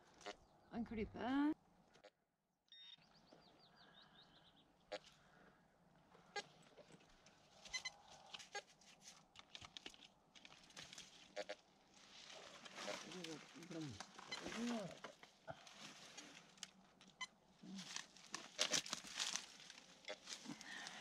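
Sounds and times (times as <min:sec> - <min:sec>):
hands rustling through soil and leaves: 0:06.5 - 0:21.0.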